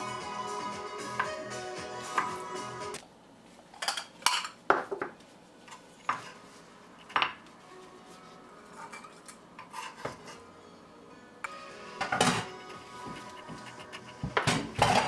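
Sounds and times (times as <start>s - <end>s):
knife scraping on cutting board: 8.7s - 10.4s.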